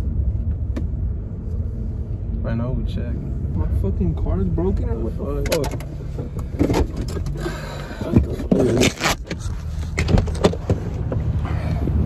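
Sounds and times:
car engine humming: 0.0s - 12.0s.

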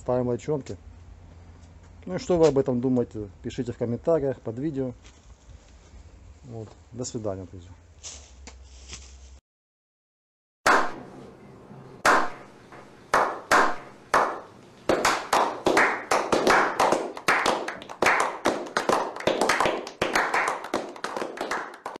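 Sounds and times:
group clapping: 10.7s - 11.0s, 12.0s - 12.4s, 13.1s - 22.0s.

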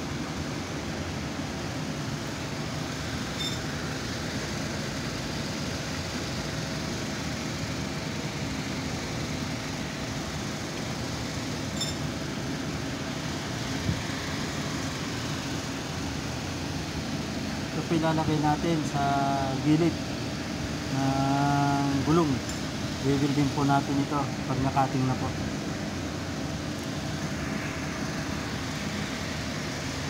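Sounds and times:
faint short high chirps: 3.4s - 3.6s, 11.8s - 12.0s.

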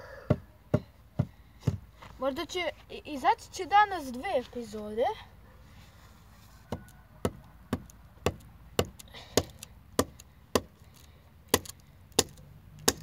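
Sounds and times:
sharp wooden knocks on pole: 11.5s - 13.0s.

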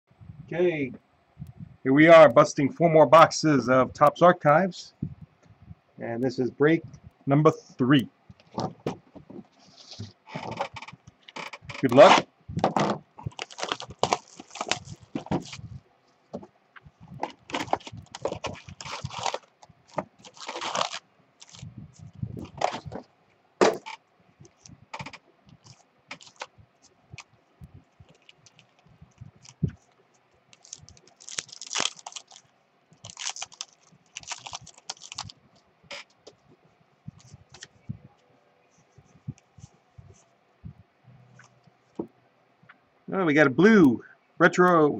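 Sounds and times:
wrapped packs crinkling: 9.8s - 15.8s, 16.4s - 23.1s, 23.7s - 35.4s
wrapper tearing open: 13.3s - 15.6s, 17.3s - 21.7s, 24.6s - 26.5s, 30.5s - 35.3s
cardboard box being opened: 17.2s - 21.6s.

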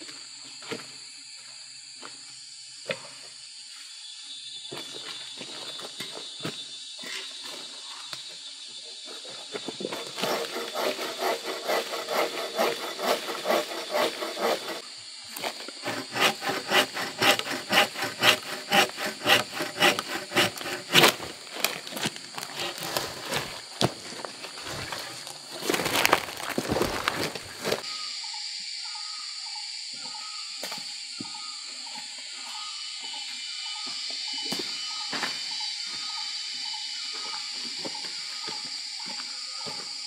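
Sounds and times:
saw cutting wood: 9.8s - 14.8s, 15.4s - 23.9s.

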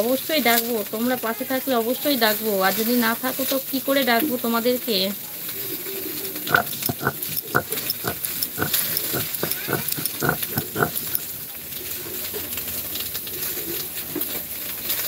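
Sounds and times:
spatula scraping a pan: 6.5s - 11.4s.

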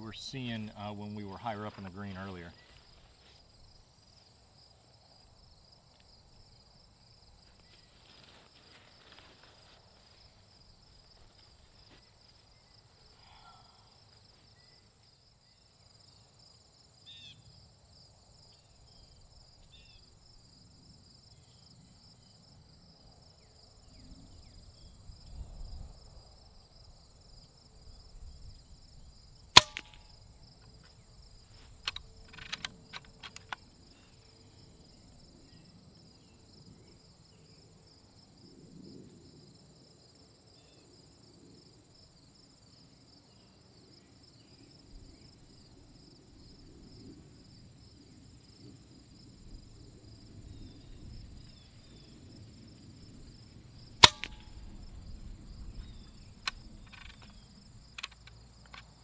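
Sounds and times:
crickets and insects chirping: 0.0s - 59.0s
air rifle shot: 29.6s - 30.0s, 54.0s - 54.6s.

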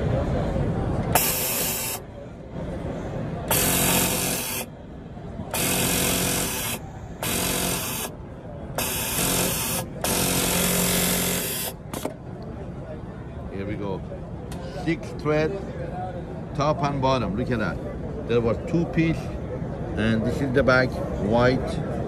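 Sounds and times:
sewing machine stitching: 3.5s - 4.7s.

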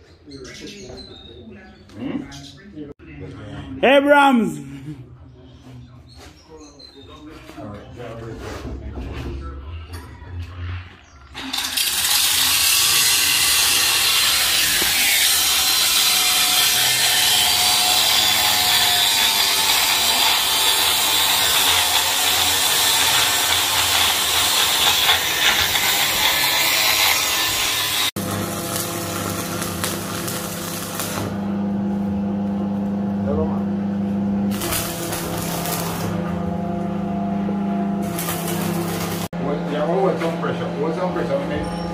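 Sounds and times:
angle grinder grinding metal: 11.4s - 31.4s, 34.5s - 36.5s, 38.0s - 39.4s
arc welding crackle: 11.4s - 31.4s, 34.5s - 36.3s, 38.0s - 39.3s.

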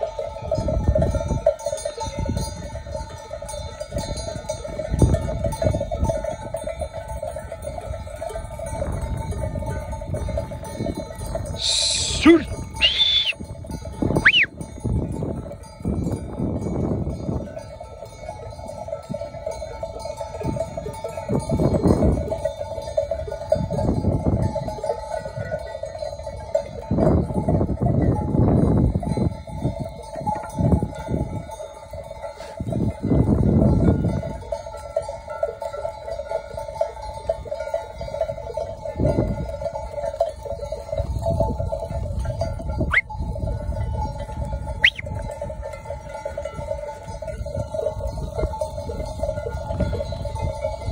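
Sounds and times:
sheep bells jangling: 0.0s - 50.9s.

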